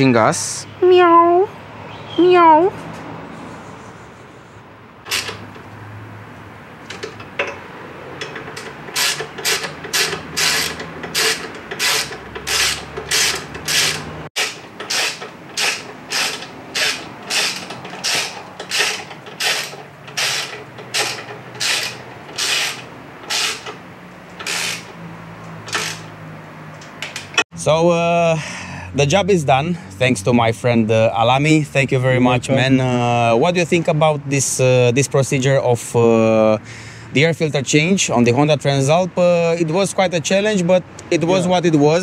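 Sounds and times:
hand ratchet clicking: 5.1s - 5.7s, 8.2s - 26.2s.

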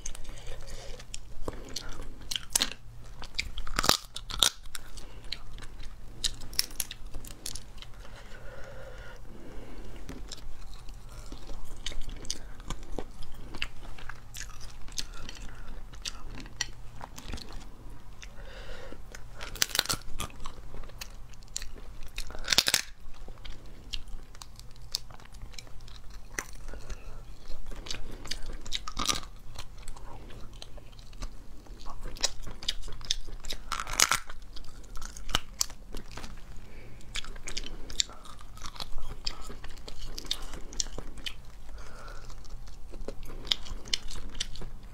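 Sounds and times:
chewing: 0.0s - 44.9s
steady low hum: 0.0s - 44.9s
crab shells cracking: 1.0s - 7.7s, 19.4s - 20.4s, 21.0s - 30.0s, 30.6s - 36.4s.

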